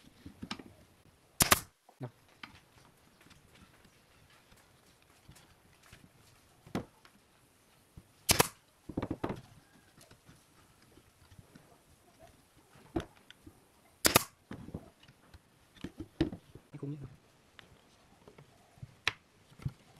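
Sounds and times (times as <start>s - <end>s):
pneumatic nailer firing: 1.4s - 1.7s, 8.3s - 8.6s, 14.0s - 14.4s
wooden knocks: 8.9s - 9.5s.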